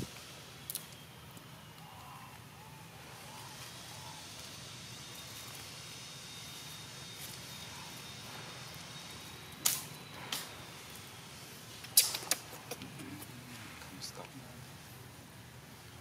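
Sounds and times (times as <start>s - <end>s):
steady high hiss: 0.0s - 16.0s
thin high whine: 0.0s - 16.0s
sharp clicks: 11.8s - 13.0s.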